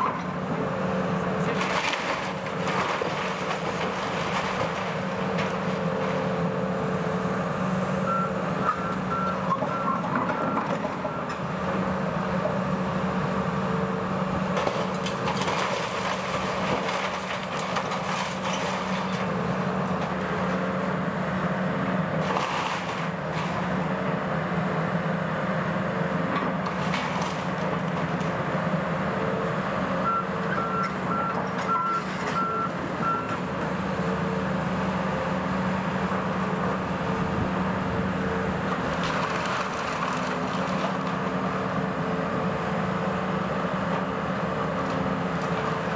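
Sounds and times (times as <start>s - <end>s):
excavator diesel engine running: 0.0s - 45.9s
debris crashing: 1.5s - 5.7s, 14.6s - 19.2s, 38.9s - 41.1s.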